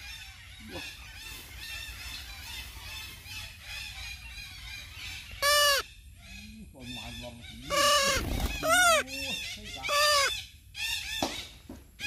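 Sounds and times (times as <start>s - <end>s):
parrot squawking: 4.2s - 5.9s, 7.4s - 10.4s.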